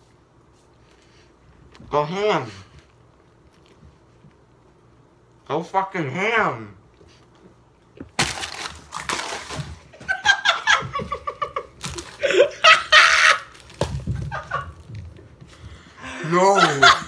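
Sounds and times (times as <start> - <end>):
teenage boys laughing loudly: 9.9 - 14.8, 16.0 - 17.0.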